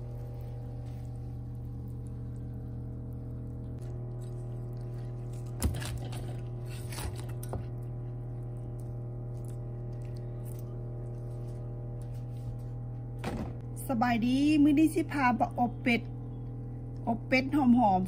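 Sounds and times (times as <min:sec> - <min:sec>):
crisp skin crunching: 0:00.0 - 0:06.7, 0:08.4 - 0:11.6
low hum: 0:00.0 - 0:18.0.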